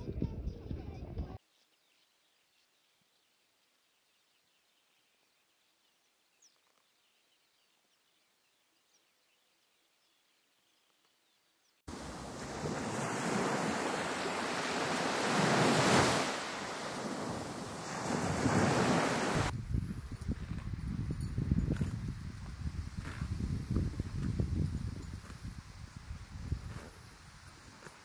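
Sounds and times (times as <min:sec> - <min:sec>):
waves breaking on beach: 0:11.9 - 0:19.5.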